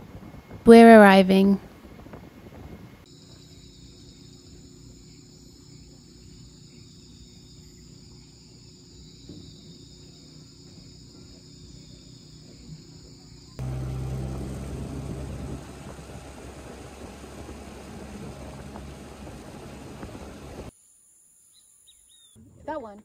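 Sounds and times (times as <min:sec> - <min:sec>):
insects chirring: 0:03.0 - 0:23.0
loud low rumble: 0:13.6 - 0:20.7.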